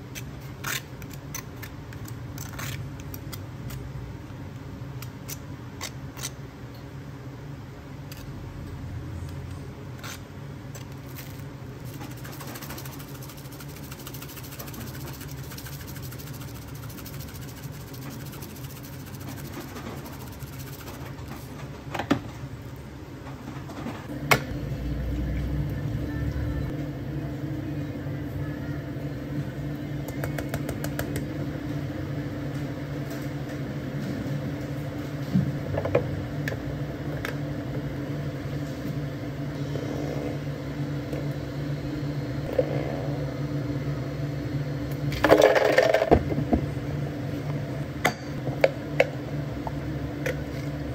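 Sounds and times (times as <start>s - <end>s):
shop machine hum: 10.9s - 50.9s.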